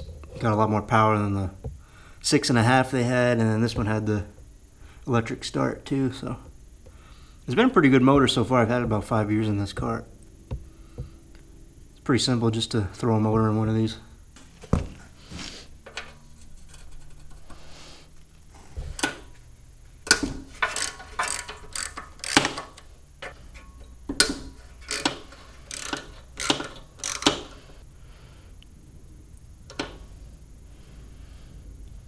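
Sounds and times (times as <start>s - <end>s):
ratchet wrench clicking: 20.0s - 23.0s, 23.8s - 27.6s.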